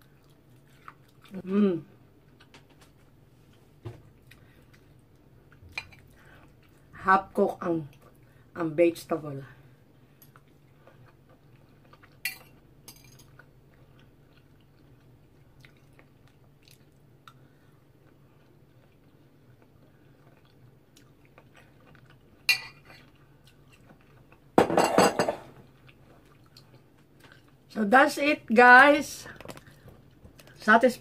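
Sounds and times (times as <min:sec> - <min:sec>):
quiet chewing: 0:00.0 - 0:06.9, 0:10.0 - 0:24.5, 0:25.7 - 0:27.6, 0:29.3 - 0:30.6
faint room hum: 0:00.0 - 0:31.0.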